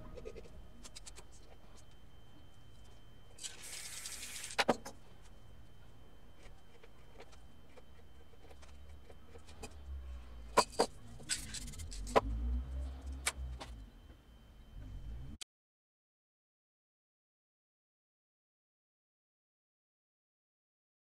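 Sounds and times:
faint high whine: 0.0s - 15.4s.

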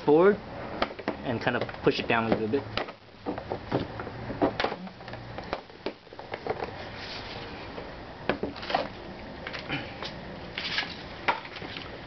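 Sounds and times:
plastic knocks and scraping: 0.8s - 9.7s.

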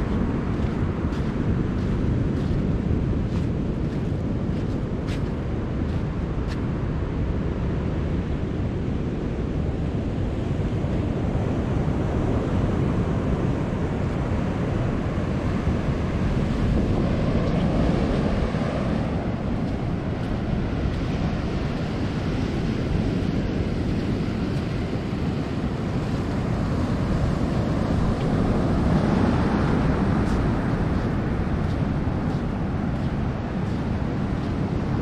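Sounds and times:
ocean surf washing: 0.0s - 35.0s
wind rumbling on microphone: 0.0s - 35.0s.

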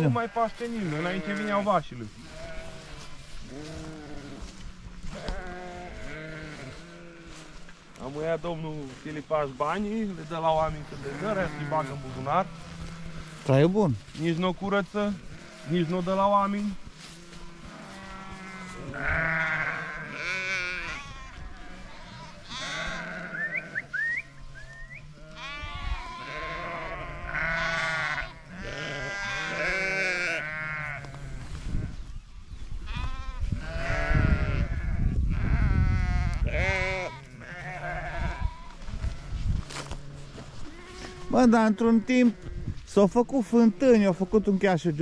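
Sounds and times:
sheep bleating: 0.0s - 8.2s, 9.6s - 24.4s, 25.1s - 31.9s, 32.9s - 42.8s.

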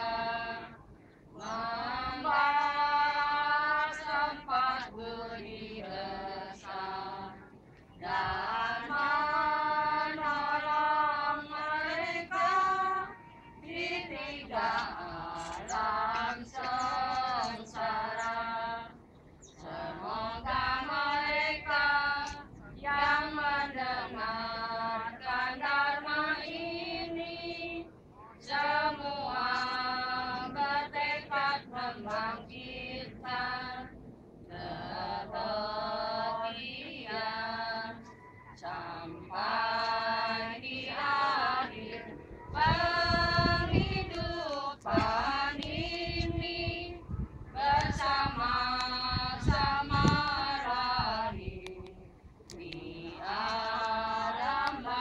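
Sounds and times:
group singing: 0.0s - 55.0s
low rumble on microphone: 42.0s - 53.7s.

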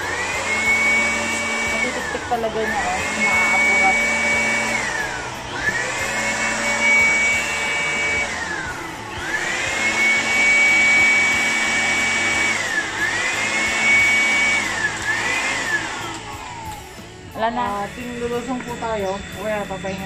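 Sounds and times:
electric blower motor whine: 0.0s - 20.0s.

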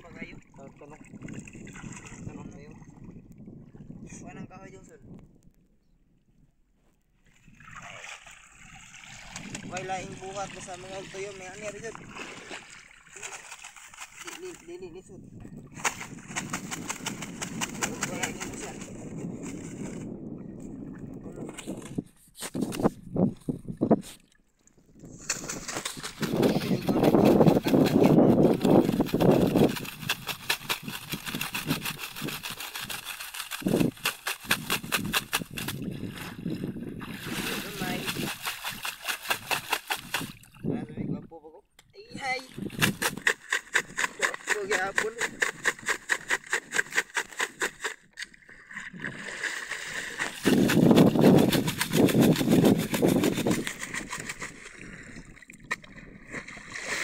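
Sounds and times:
seawater splashing and dripping: 0.0s - 3.8s, 7.2s - 18.6s, 23.3s - 40.7s, 41.6s - 57.0s
wind gusts on microphone: 0.0s - 6.5s, 8.6s - 12.6s, 14.6s - 24.2s, 24.8s - 33.0s, 33.6s - 47.8s, 48.9s - 57.0s
water sloshing around basket: 7.3s - 14.8s, 23.3s - 40.7s, 42.4s - 57.0s
quick rhythmic scraping: 25.2s - 35.8s, 42.7s - 48.0s, 50.2s - 54.6s.

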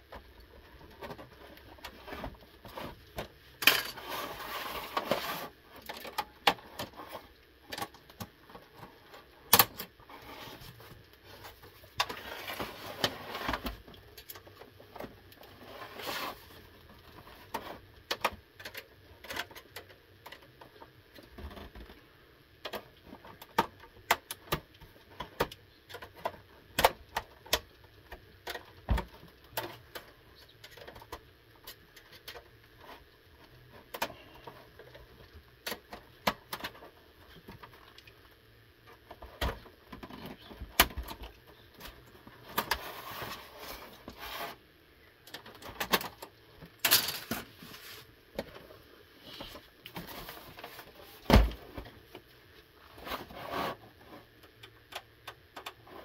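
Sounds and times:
plastic and metal clicks and rattles: 17.2s - 22.0s, 22.6s - 33.0s, 45.2s - 47.5s.

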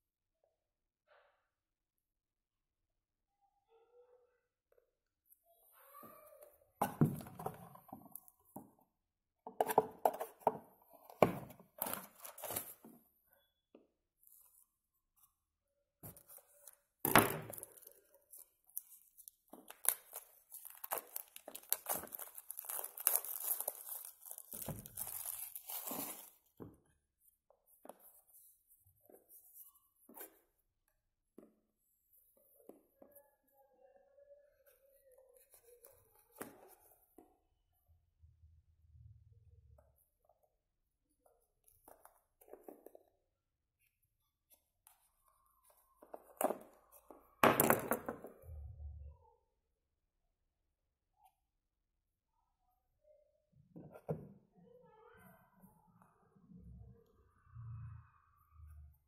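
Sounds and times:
plastic wrap tearing and crinkling: 18.8s - 26.5s.

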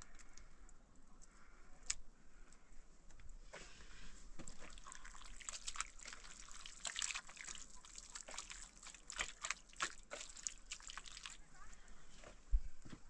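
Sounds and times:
liquid trickling and dripping: 4.4s - 11.6s
small clicks and splashes: 4.4s - 11.8s.

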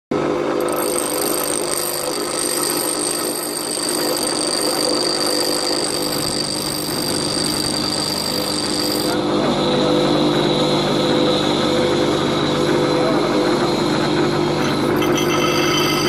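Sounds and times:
bench grinder whining: 0.3s - 10.5s, 13.6s - 16.0s.

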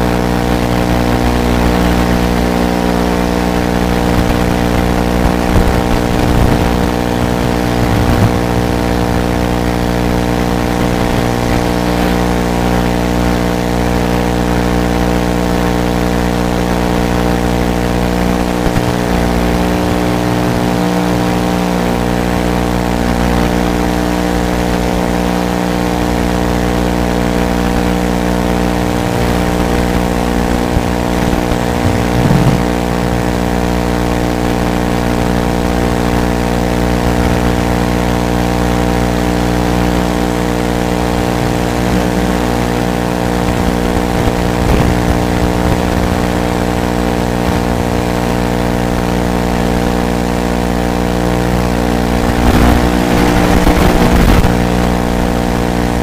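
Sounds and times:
quadcopter buzzing hum: 4.7s - 11.6s, 17.5s - 22.4s, 28.4s - 35.2s.

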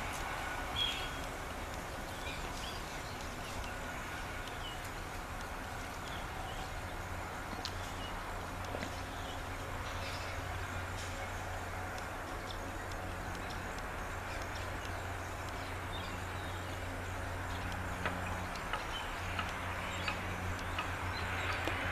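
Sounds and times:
highway traffic noise: 0.0s - 21.9s
light clicks: 11.9s - 16.2s.

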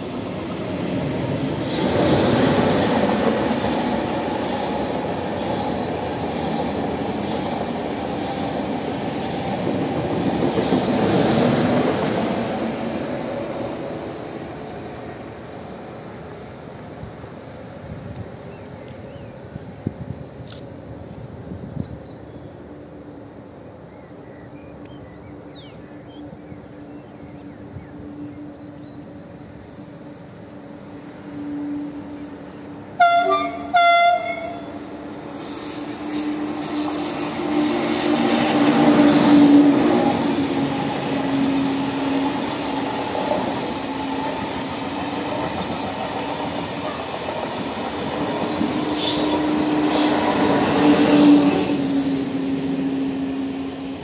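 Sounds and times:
train rolling noise: 0.0s - 54.0s
small birds chirping: 21.8s - 32.8s
train horn blasts: 33.0s - 40.2s.

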